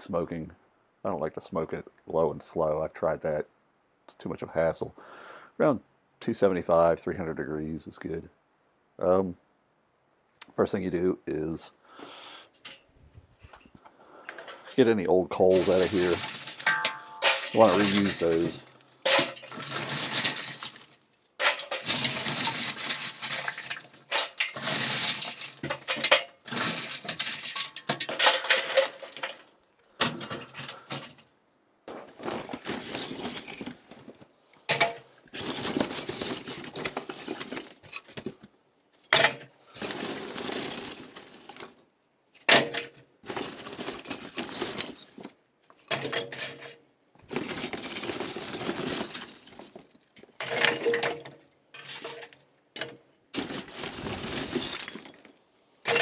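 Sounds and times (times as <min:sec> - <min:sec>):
charcoal clinking against metal: 0:14.2 - 0:31.2, 0:50.3 - 0:55.2.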